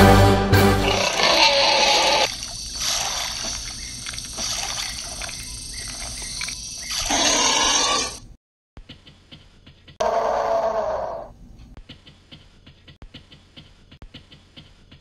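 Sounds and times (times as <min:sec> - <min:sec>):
water trickling: 0:02.2 - 0:06.9.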